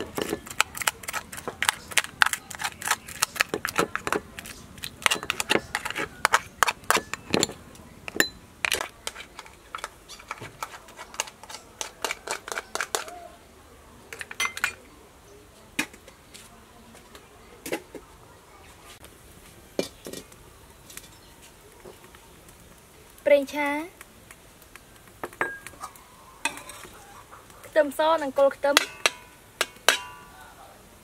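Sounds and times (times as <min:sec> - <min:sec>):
metal spoon scraping crab shell: 0:00.0 - 0:13.2, 0:26.4 - 0:27.0.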